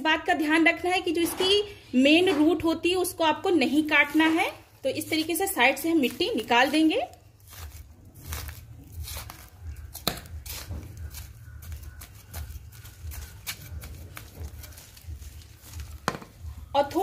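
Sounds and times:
roots tearing: 3.8s - 16.6s.

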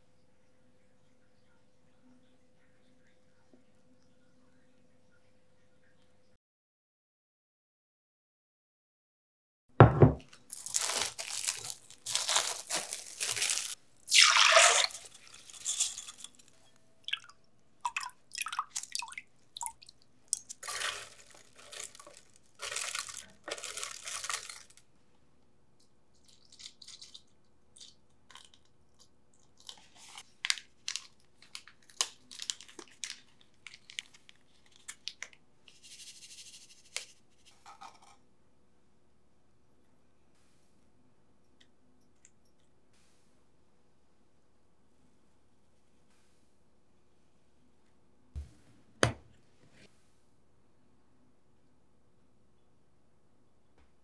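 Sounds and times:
rice pouring into plastic jar: 20.5s - 24.8s.

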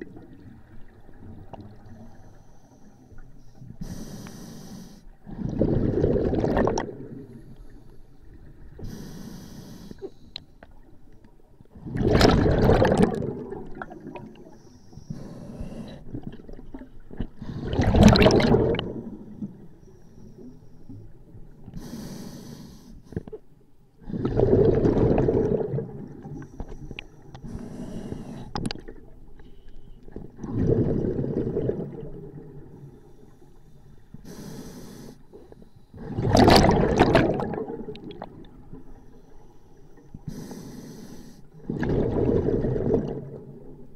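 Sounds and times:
exhaled bubbles underwater: 0.0s - 4.0s, 5.2s - 9.2s, 11.7s - 19.8s, 24.0s - 29.3s, 30.1s - 34.4s, 35.4s - 39.2s, 41.6s - 43.9s
regulator inhalation hiss: 3.8s - 5.1s, 8.8s - 10.3s, 21.8s - 23.0s, 34.2s - 35.4s, 40.3s - 41.5s.

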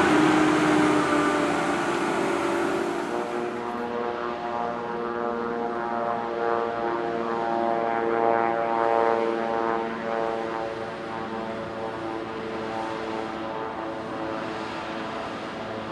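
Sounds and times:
tractor diesel engine under load: 0.0s - 3.7s.

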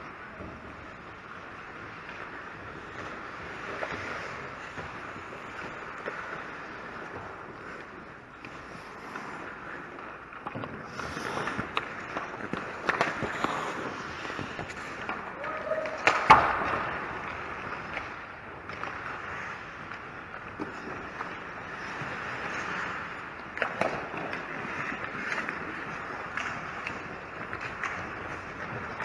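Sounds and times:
ice skates scraping on ice: 0.0s - 29.0s
hockey sticks and puck clacking: 7.8s - 29.0s.

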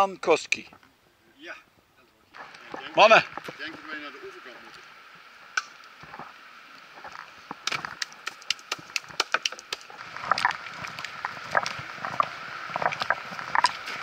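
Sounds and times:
water rushing: 2.2s - 14.0s
oars knocking in oarlocks: 7.0s - 14.0s.

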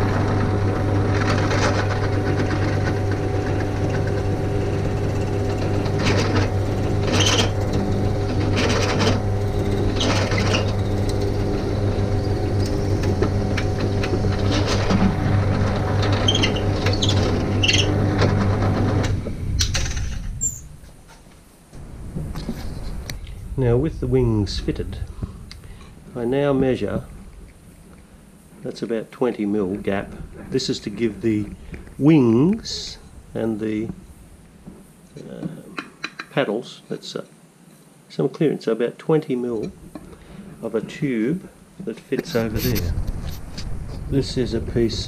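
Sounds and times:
drill bit scraping wood: 0.0s - 19.2s, 42.2s - 43.6s
drill press motor running: 0.0s - 19.8s.

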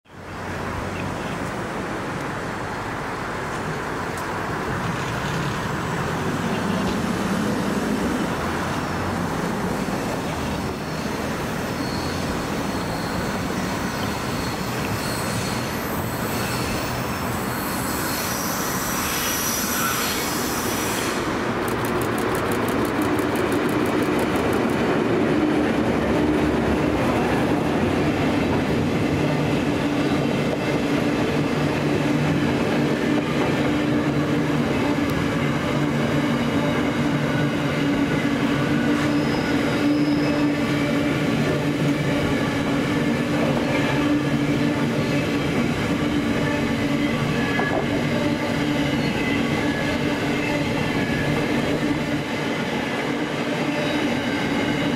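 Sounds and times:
freight train rumbling past: 1.5s - 54.9s
high wheel squeal: 9.7s - 23.2s, 38.8s - 41.2s.

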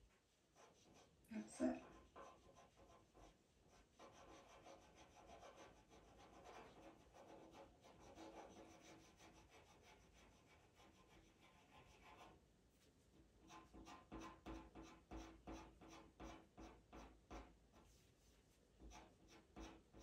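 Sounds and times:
pencil scratching on paper: 0.5s - 12.4s, 13.4s - 20.0s.

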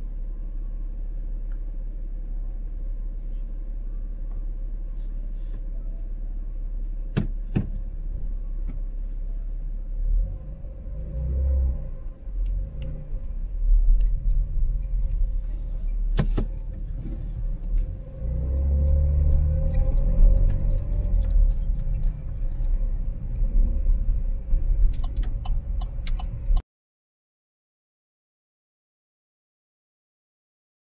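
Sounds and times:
faint steady hum: 0.0s - 10.9s
engine and road rumble: 0.0s - 26.6s.

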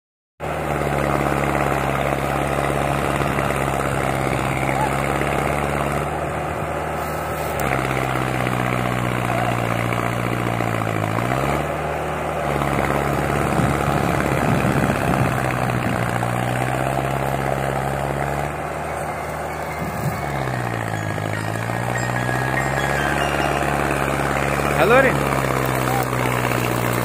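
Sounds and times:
tractor diesel engine straining: 0.4s - 27.0s.

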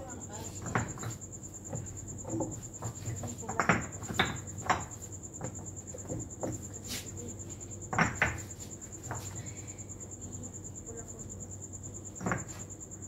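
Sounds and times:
cricket trill: 0.0s - 13.0s
hands knocking and scraping soil: 1.8s - 7.2s.

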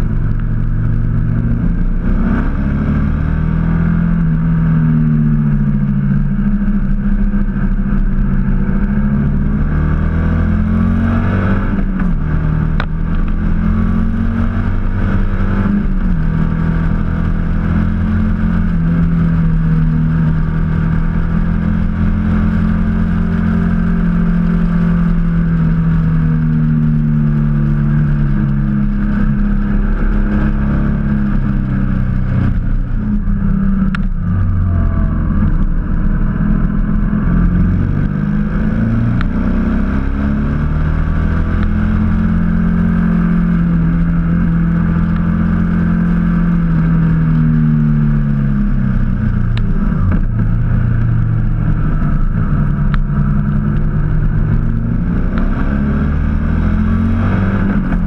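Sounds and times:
motorcycle engine revving: 0.0s - 58.0s
wind noise: 0.0s - 58.0s.

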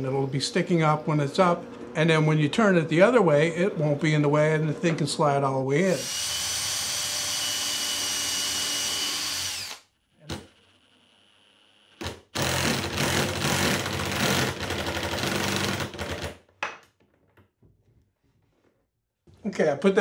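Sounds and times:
cordless drill boring into wood: 5.9s - 16.0s
impact driver hammering screw: 6.0s - 10.5s.

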